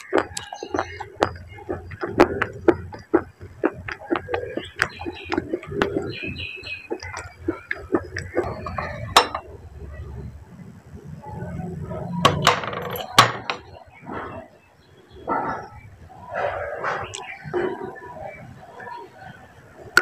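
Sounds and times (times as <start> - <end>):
clay discs clinking on steel plate: 8.3 - 9.5, 12.3 - 13.7.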